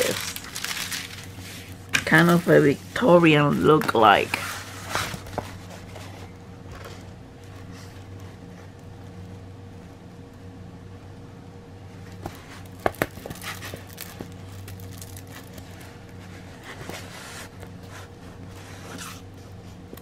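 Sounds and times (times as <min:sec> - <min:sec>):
plastic film crinkling: 0:00.0 - 0:05.2, 0:12.6 - 0:16.6
steady low hum: 0:00.0 - 0:20.0.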